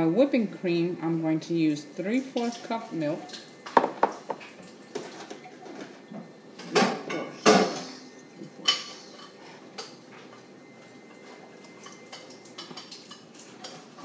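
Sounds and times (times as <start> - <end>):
kitchen containers clattering: 2.4 - 8.0.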